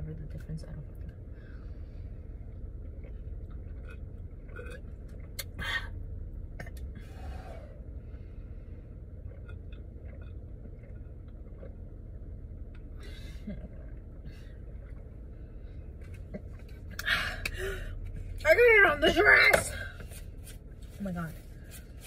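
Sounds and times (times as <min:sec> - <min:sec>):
car cabin hum: 0:00.0 - 0:22.0
woman sipping and swallowing: 0:02.4 - 0:07.7, 0:09.1 - 0:18.2.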